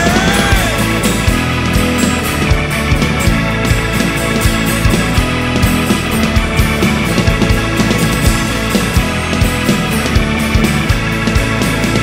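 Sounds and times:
drum kit steady beat: 0.0 - 12.0
electric guitars: 0.0 - 12.0.

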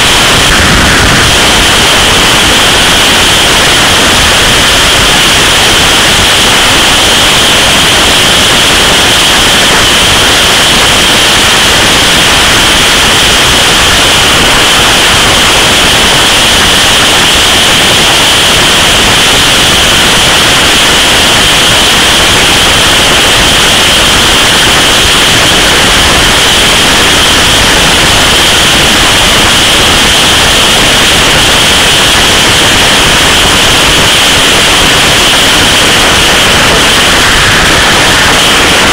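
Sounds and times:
wind rushing on microphone: 0.0 - 38.9.

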